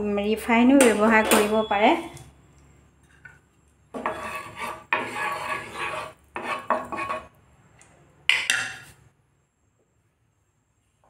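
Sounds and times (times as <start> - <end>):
wooden spatula scraping frying pan: 3.9 - 7.3.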